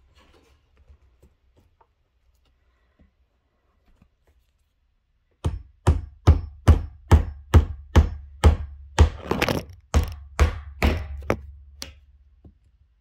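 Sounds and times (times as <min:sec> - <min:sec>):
hammer driving nail: 0:05.4 - 0:12.0.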